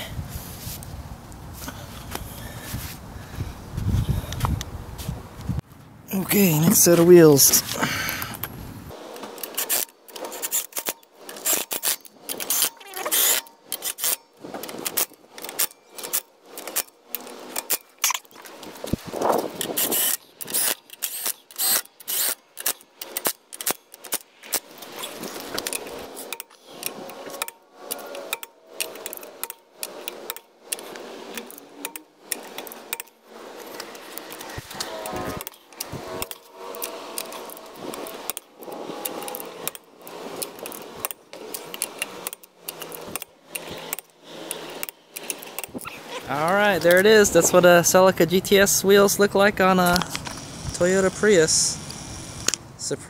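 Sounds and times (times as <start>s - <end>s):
impact driver running lug nuts: 7.6s - 45.9s, 49.7s - 52.7s.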